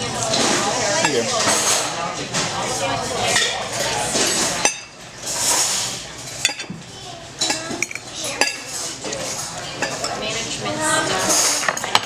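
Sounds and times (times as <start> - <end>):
murmur of voices: 0.0 - 12.0
cutlery clinking on plate: 7.4 - 10.2, 11.1 - 12.0.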